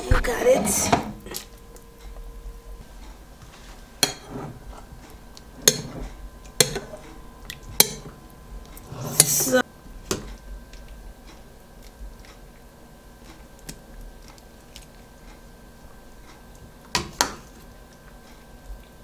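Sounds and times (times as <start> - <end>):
faint electrical hum: 0.0 - 19.0
metal spoon clinking on dishes: 5.6 - 6.0, 7.8 - 8.1.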